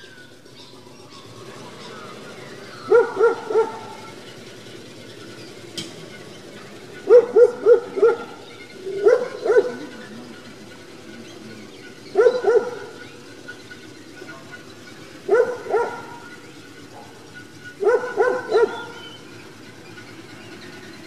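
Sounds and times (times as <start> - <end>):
dog barking: 2.8 - 4.2, 7.0 - 10.0, 12.0 - 13.0, 15.2 - 19.2.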